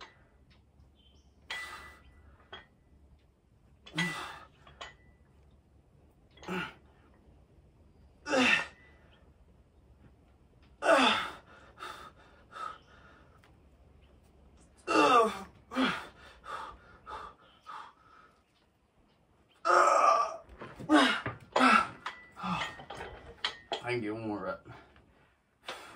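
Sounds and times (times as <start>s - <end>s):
man grunting with effort: 10.8s - 11.4s, 14.9s - 16.0s, 19.6s - 22.7s.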